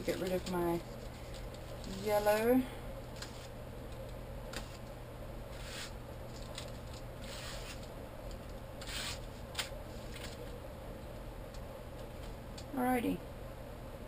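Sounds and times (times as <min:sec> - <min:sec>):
plastic card scraping paper: 0:00.2 - 0:02.5, 0:03.2 - 0:03.6, 0:04.5 - 0:04.9, 0:05.5 - 0:07.9, 0:08.8 - 0:10.4.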